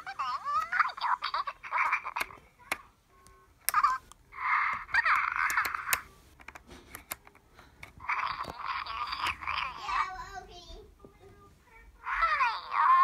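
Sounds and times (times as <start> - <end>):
toys chattering electronic voices: 0.0 - 6.3, 8.0 - 10.2, 12.0 - 13.0.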